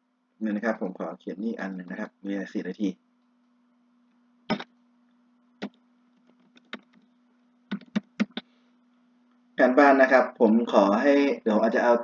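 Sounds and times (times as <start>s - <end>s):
faint electrical hum: 0.0s - 12.0s
computer mouse clicks: 5.6s - 7.1s.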